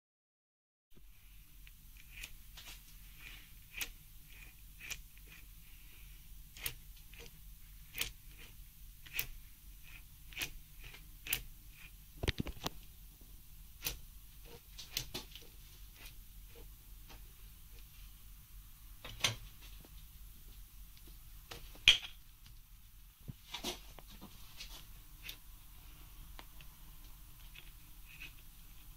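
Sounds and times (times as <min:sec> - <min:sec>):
low steady hum: 0:01.0 - 0:28.9
sharp clicks and knocks: 0:12.2 - 0:12.9.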